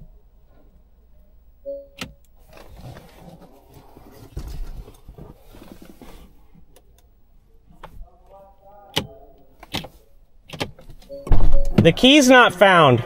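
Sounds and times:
short beep: 1.6s - 2.1s, 11.1s - 11.9s
rustling and shuffling in car seat: 2.4s - 6.8s.

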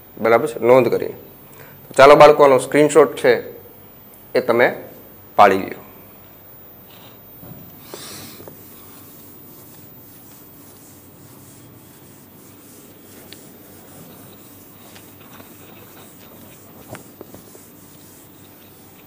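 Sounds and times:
cloth wiping whiteboard: 6.9s - 19.0s.

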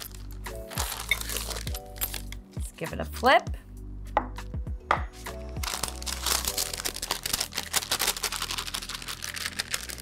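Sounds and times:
parchment paper crinkling: 0.0s - 2.3s, 5.6s - 10.0s.

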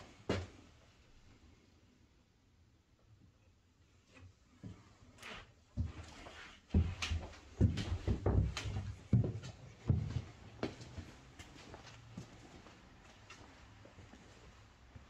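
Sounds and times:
irregular knocks and thuds: 6.8s - 10.2s.

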